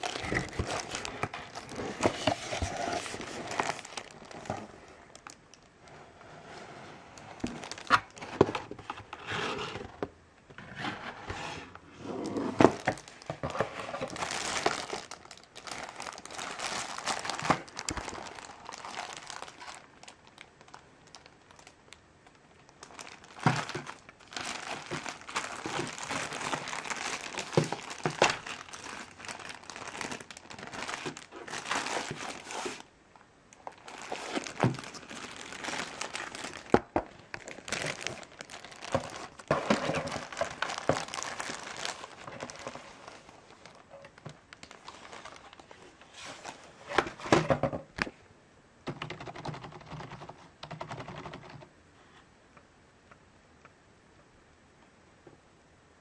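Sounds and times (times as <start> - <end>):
plastic bag crinkling: 0.0 - 5.8, 7.4 - 9.1, 12.2 - 47.4.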